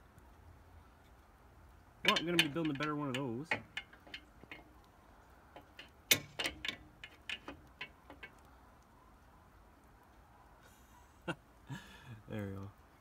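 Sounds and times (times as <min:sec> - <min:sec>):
wrench clicking and knocking: 0:02.0 - 0:04.8, 0:05.5 - 0:08.4.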